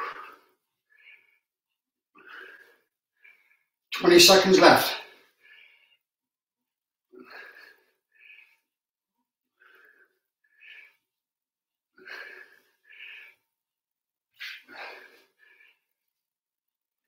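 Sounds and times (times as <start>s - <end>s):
man breathing hard: 0.0s - 1.5s, 5.2s - 6.1s, 9.5s - 11.2s, 12.0s - 13.5s, 14.4s - 15.9s.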